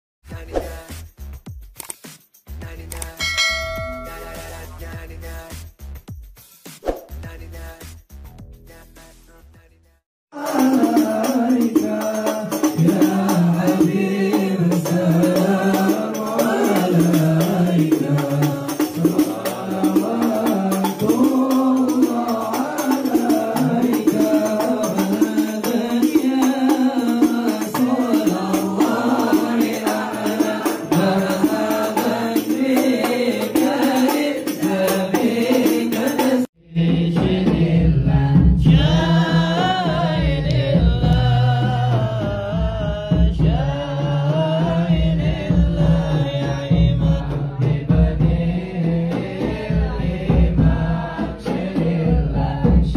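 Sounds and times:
men chanting in unison: 10.3 - 52.9.

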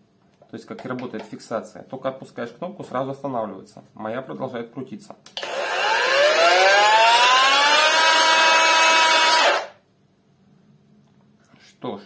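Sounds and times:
angle grinder whine: 5.4 - 9.8.

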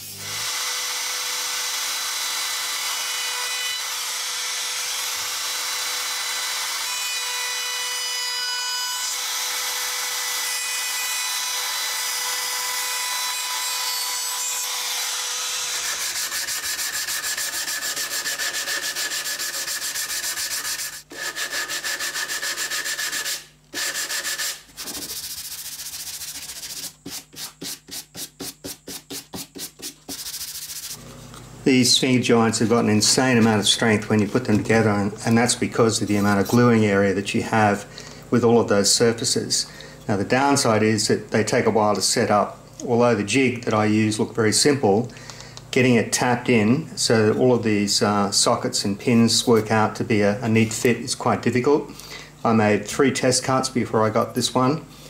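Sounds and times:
router whining: 0.0 - 8.0, 8.6 - 21.2
hand sanding strokes on wood: 16.0 - 31.0.

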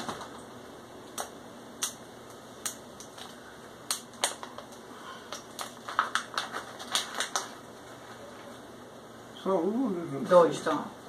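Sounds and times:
plastic snack packet crackling: 2.7 - 8.4.

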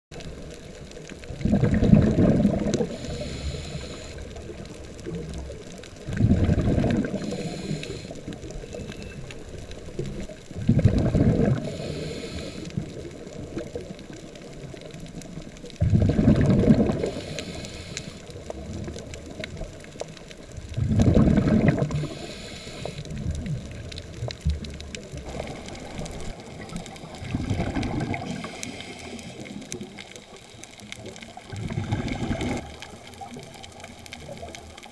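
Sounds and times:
bubbling exhaled air underwater: 0.1 - 34.9
regulator inhaling hiss: 2.8 - 4.5, 7.1 - 9.3, 11.6 - 13.0, 17.0 - 18.5, 21.8 - 23.2, 25.3 - 30.0.

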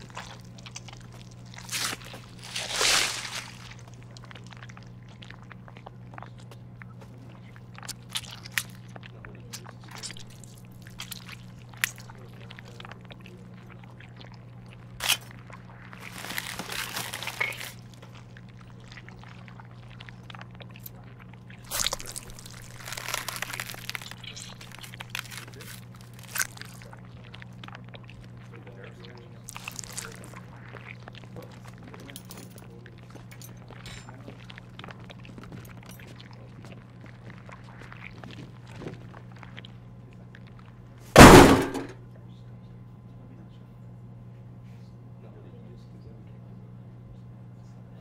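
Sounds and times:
wet squelching and crunching: 0.0 - 41.9
steady low hum: 0.0 - 48.0.

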